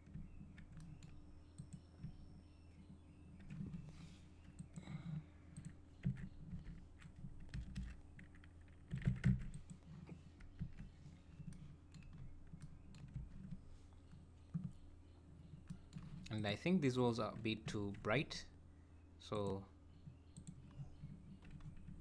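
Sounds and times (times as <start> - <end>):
keyboard and mouse clicking: 0.0 - 2.2, 5.5 - 9.8, 10.4 - 14.8
steady low hum: 0.0 - 22.0.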